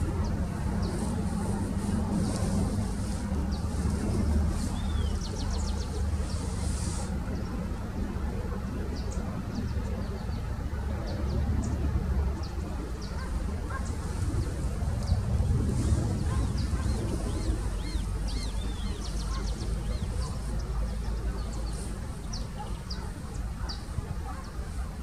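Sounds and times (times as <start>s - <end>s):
small birds chirping: 0.0s - 7.7s, 8.8s - 25.0s
distant road traffic: 0.0s - 25.0s.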